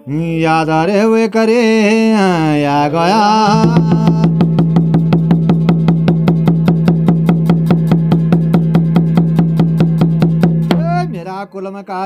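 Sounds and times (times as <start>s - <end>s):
low drone note: 2.8s - 11.2s
fast drum strokes: 3.4s - 11.2s.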